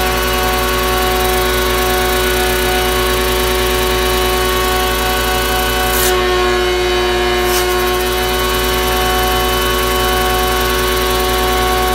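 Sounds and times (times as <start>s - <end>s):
vacuum running: 0.0s - 11.9s
compressed air hissing: 4.4s - 6.4s, 7.4s - 9.7s.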